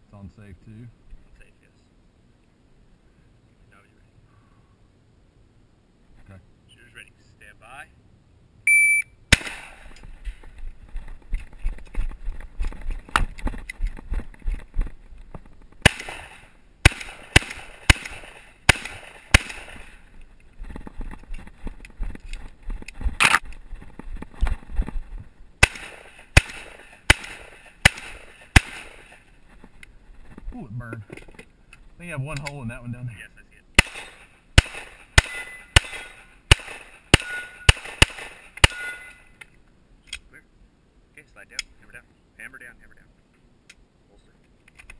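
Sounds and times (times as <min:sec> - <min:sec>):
electronic shot-timer beep: 0:08.7 - 0:09.1
shotgun shots: 0:09.3 - 0:10.1, 0:15.8 - 0:20.1, 0:25.6 - 0:29.3, 0:33.8 - 0:39.2.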